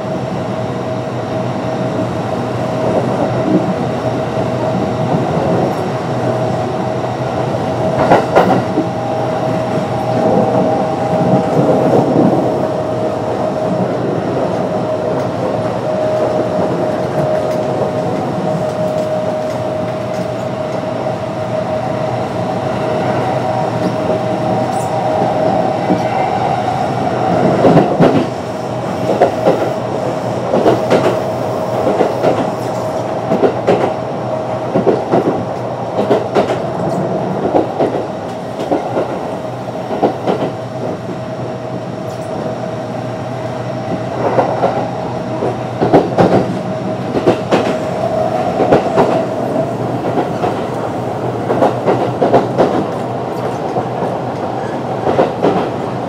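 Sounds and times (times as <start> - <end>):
train rumble: 0.0 - 56.0
train wheels clacking over rail joints: 7.9 - 9.0, 30.5 - 31.2, 31.8 - 34.0, 36.0 - 39.2, 45.4 - 55.8.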